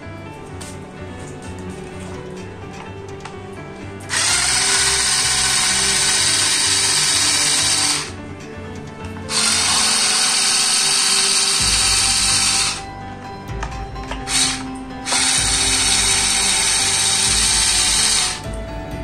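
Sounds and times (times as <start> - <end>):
background music: 0.0 - 19.0
electric screwdriver whirring: 4.1 - 8.2, 9.3 - 12.9, 14.0 - 18.5.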